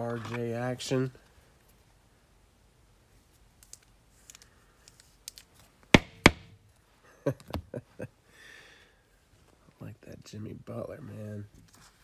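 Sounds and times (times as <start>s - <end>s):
trading cards knocking on tabletop: 6.0s - 6.5s.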